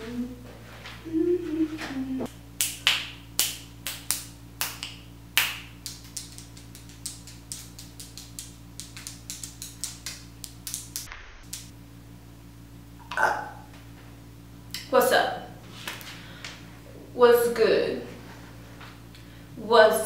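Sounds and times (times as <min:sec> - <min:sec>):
woman humming: 0:00.0 - 0:02.3
steady low hum: 0:00.0 - 0:20.0
fingers snapping: 0:02.6 - 0:11.7.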